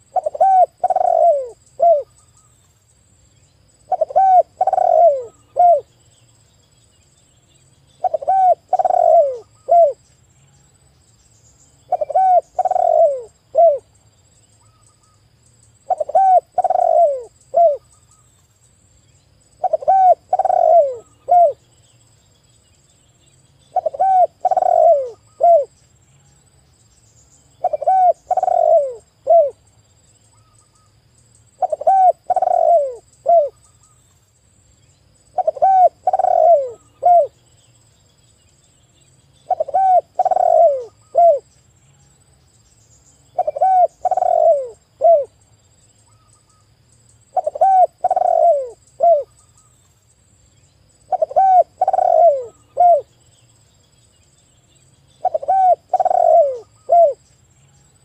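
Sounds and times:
dove cooing: 0.0s - 2.1s, 3.9s - 5.9s, 8.0s - 10.0s, 11.9s - 13.9s, 15.8s - 17.8s, 19.6s - 21.6s, 23.7s - 25.8s, 27.6s - 29.6s, 31.6s - 33.6s, 35.3s - 37.4s, 39.4s - 41.5s, 43.4s - 45.4s, 47.3s - 49.3s, 51.1s - 53.1s, 55.2s - 57.2s.

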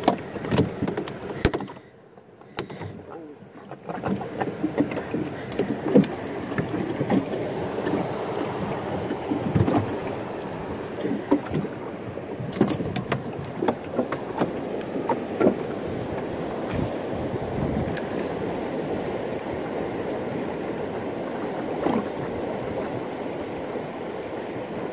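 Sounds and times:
knocks and clicks: 0.0s - 1.8s
water slapping against boat hull: 0.0s - 24.9s.

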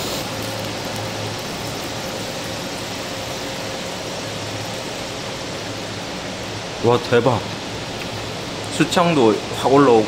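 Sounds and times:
meat sizzling on grill: 0.0s - 10.0s
ventilation hum: 0.0s - 10.0s.

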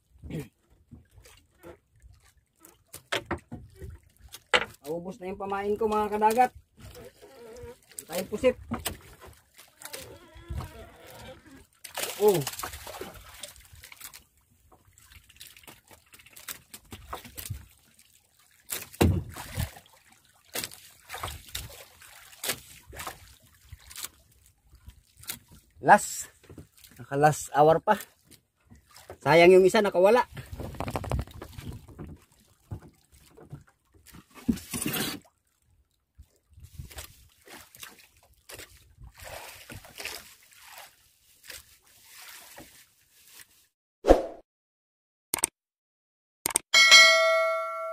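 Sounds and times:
water sloshing against boat: 0.0s - 43.7s
fishing line hauled in: 8.9s - 19.9s
knocks on wooden boat: 19.0s - 19.4s.

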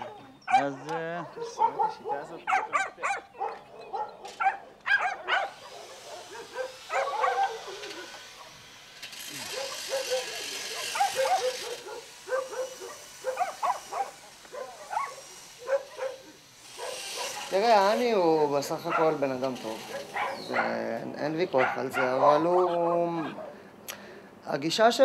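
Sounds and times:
dogs barking: 0.0s - 18.0s, 18.7s - 23.6s
power drill running: 5.5s - 18.5s.

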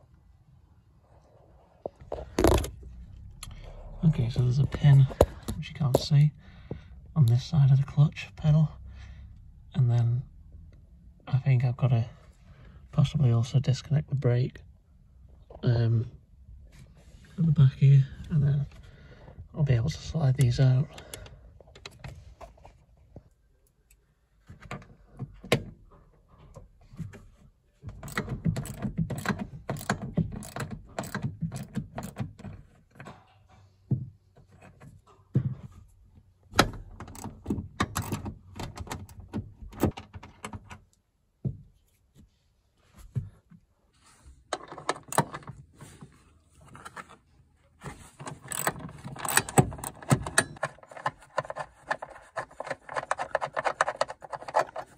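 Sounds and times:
socket ratchet clicking: 28.0s - 32.2s, 48.5s - 50.7s.

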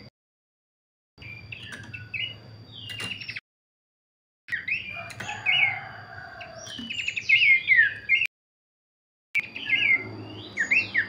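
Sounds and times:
bird singing whistled notes: 1.2s - 3.4s, 4.5s - 8.3s, 9.4s - 11.0s.

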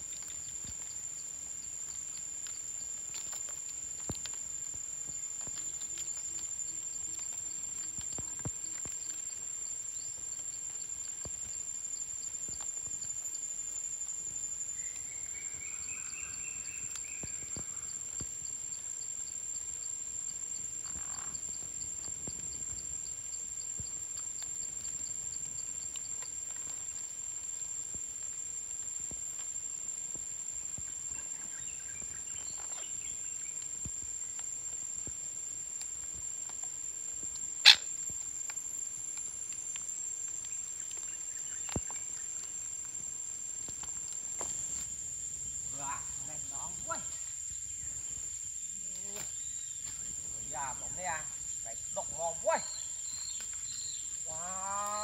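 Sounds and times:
parrots calling: 37.6s - 37.8s.

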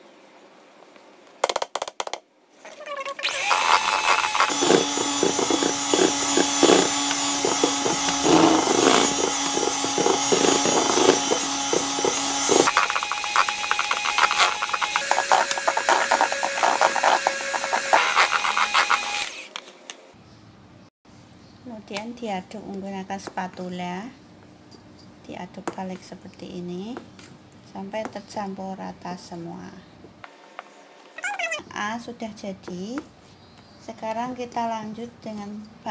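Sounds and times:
electric hand mixer whirring: 3.1s - 19.6s.

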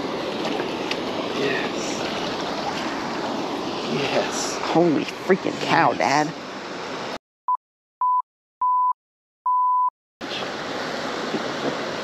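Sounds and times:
water noise: 0.0s - 7.2s, 10.2s - 12.0s
wind: 0.0s - 7.2s, 10.2s - 12.0s
censor bleeps: 7.5s - 9.9s.

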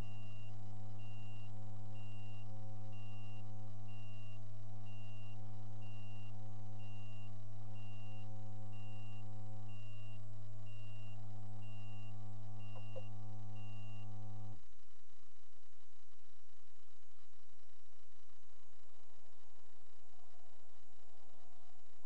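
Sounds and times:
high electronic warning beep: 0.0s - 14.1s
vehicle engine idling: 0.0s - 14.7s.

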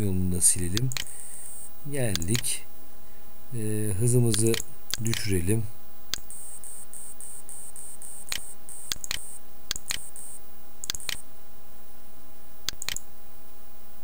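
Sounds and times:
steady hum: 0.0s - 14.0s
computer mouse clicking: 0.7s - 1.1s, 2.1s - 2.5s, 4.3s - 5.3s, 8.2s - 10.2s, 10.8s - 11.2s, 12.7s - 13.1s.

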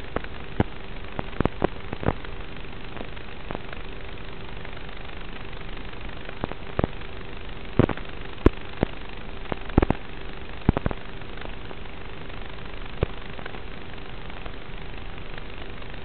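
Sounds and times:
sharp clicks and pops: 0.0s - 3.8s, 6.3s - 7.0s, 7.8s - 11.6s
faint low hum: 0.0s - 16.0s
static hiss: 0.0s - 16.0s.

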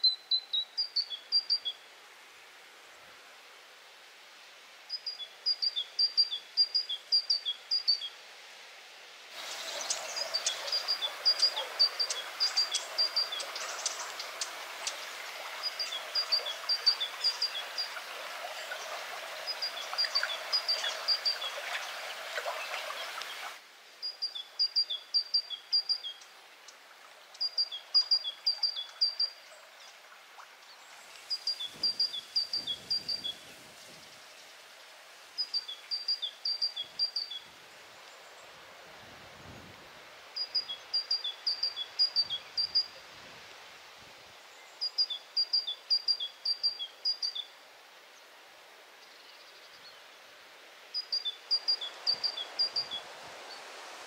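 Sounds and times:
songbird singing: 0.0s - 1.9s, 4.9s - 8.2s, 9.4s - 30.0s, 30.6s - 38.5s, 40.4s - 43.0s, 44.4s - 47.6s, 48.9s - 53.7s
running water: 9.3s - 23.6s.

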